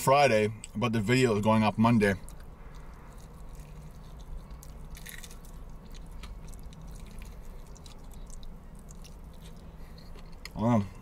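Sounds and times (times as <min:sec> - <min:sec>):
steady low hum: 0:00.0 - 0:11.0
person chewing: 0:02.2 - 0:10.6.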